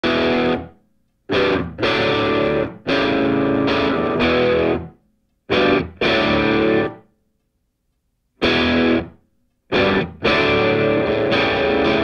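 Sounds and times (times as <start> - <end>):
distorted electric guitar chords: 0.0 - 0.7, 1.3 - 4.9, 5.5 - 7.0, 8.4 - 12.0.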